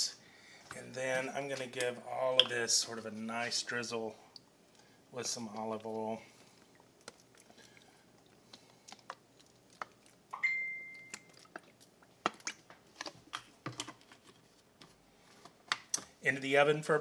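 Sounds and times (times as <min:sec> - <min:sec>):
sharp ringing tone: 0:10.4 - 0:11.3.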